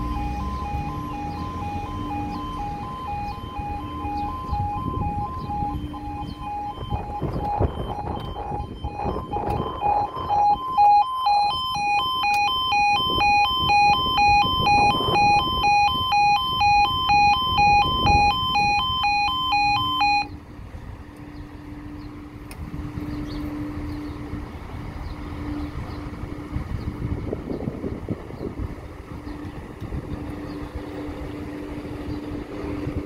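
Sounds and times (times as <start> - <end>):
level crossing warning alarm: 0.0 - 20.4
approaching train hum: 20.3 - 33.0.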